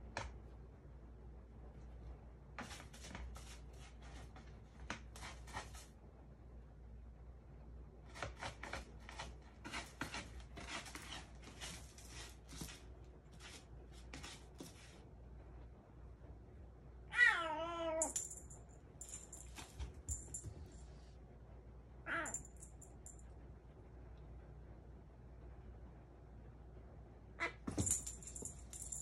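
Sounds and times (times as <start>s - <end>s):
kitten scratching in cat litter: 2.5s - 6.0s, 8.0s - 15.1s
cat meowing: 17.1s - 18.1s, 22.1s - 22.4s.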